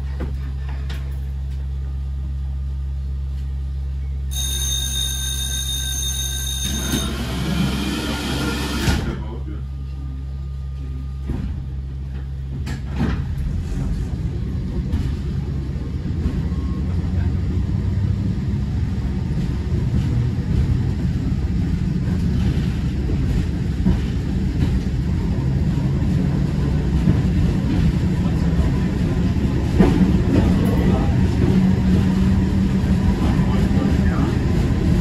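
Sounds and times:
tram humming: 0:00.0 - 0:35.0
tram rumbling along track: 0:00.0 - 0:35.0.

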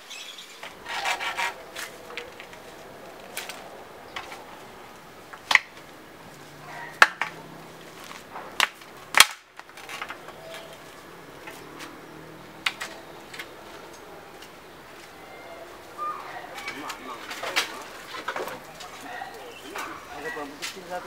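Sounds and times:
wooden props knocking and clicking: 0:07.0 - 0:07.4, 0:08.0 - 0:10.8, 0:12.6 - 0:14.6, 0:16.6 - 0:19.0.

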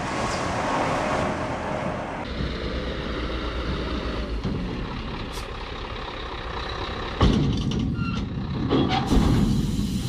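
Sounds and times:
diesel truck engine running: 0:02.2 - 0:08.8.

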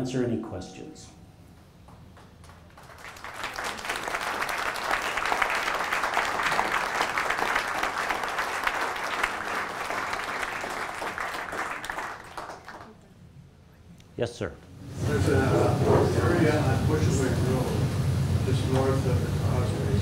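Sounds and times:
audience applauding: 0:02.2 - 0:13.0.

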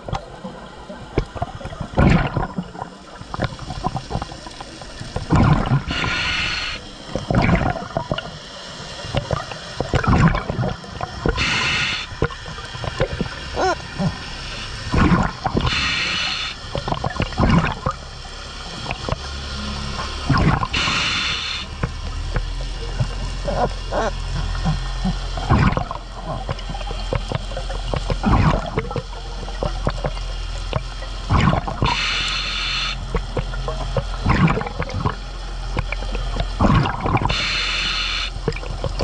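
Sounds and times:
exhaled bubbles gurgling: 0:00.0 - 0:39.0
diver inhaling through regulator: 0:05.8 - 0:06.9, 0:11.4 - 0:12.1, 0:15.6 - 0:16.6, 0:20.7 - 0:21.7, 0:31.8 - 0:33.0, 0:37.3 - 0:38.4.

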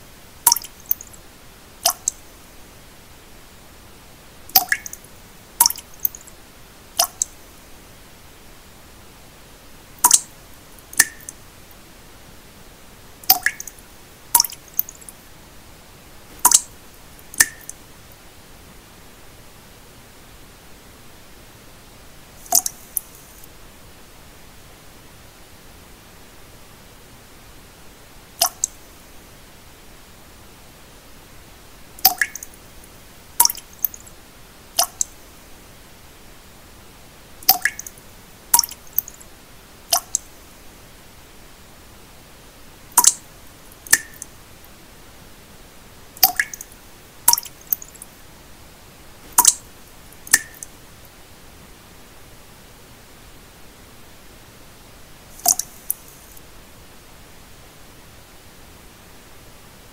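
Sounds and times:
steady hiss: 0:00.0 - 0:59.9
steady pink noise: 0:00.0 - 0:59.9
water drops plinking into water: 0:00.5 - 0:01.1, 0:01.8 - 0:02.2, 0:04.5 - 0:05.0, 0:05.6 - 0:06.3, 0:07.0 - 0:07.4, 0:10.0 - 0:10.3, 0:10.9 - 0:11.4, 0:13.2 - 0:13.8, 0:14.4 - 0:15.1, 0:16.4 - 0:16.7, 0:17.3 - 0:17.8, 0:22.4 - 0:23.1, 0:28.4 - 0:28.8, 0:32.0 - 0:32.5, 0:33.4 - 0:34.0, 0:34.8 - 0:35.1, 0:37.4 - 0:38.0, 0:38.6 - 0:39.2, 0:40.0 - 0:40.3, 0:43.0 - 0:43.2, 0:43.8 - 0:44.3, 0:46.2 - 0:46.7, 0:47.3 - 0:48.0, 0:49.3 - 0:50.7, 0:55.4 - 0:56.0.

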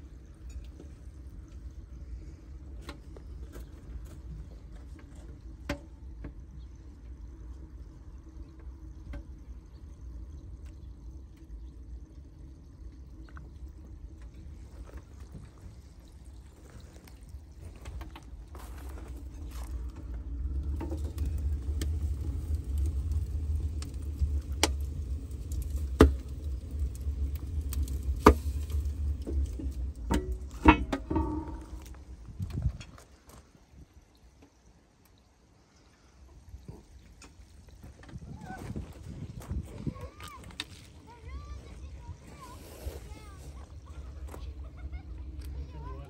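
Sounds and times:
wood fire crackling: 0:00.0 - 0:35.2, 0:36.5 - 0:46.0
low rumble: 0:05.4 - 0:33.0.

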